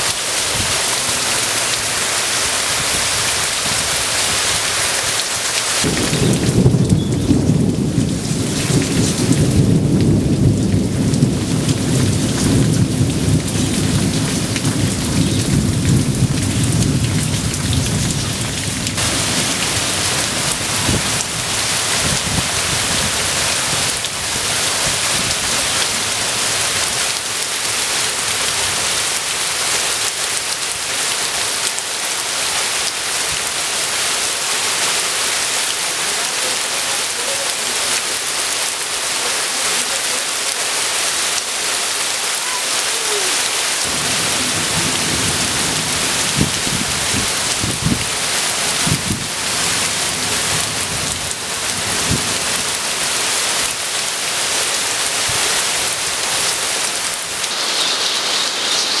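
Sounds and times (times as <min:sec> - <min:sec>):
heavy rain pouring: 0:00.0 - 0:59.0
rain falling on foliage: 0:00.0 - 0:59.0
thunder rumble: 0:05.8 - 0:24.2, 0:43.8 - 0:48.0.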